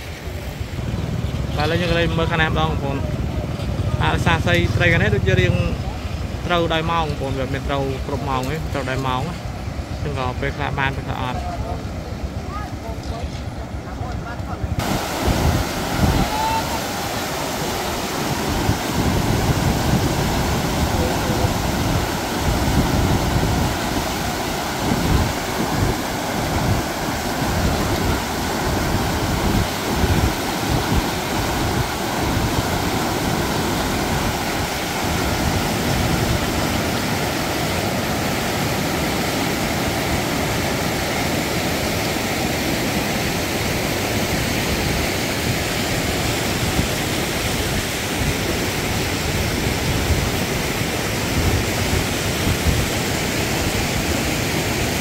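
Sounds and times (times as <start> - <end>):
wind buffeting microphone: 14.6 - 38.0.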